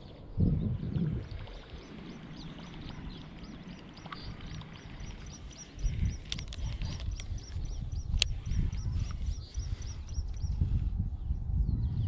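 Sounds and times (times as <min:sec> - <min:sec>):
microphone rumble: 0:00.0 - 0:12.0
small birds chirping: 0:01.5 - 0:10.8
sharp clicks: 0:06.0 - 0:08.6.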